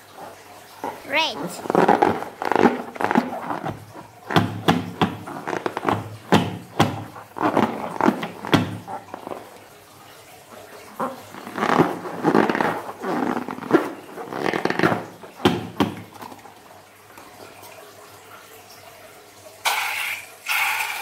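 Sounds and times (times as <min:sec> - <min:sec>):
rubbery squeaks of slime balloon: 0:00.2 - 0:09.6, 0:11.0 - 0:16.6.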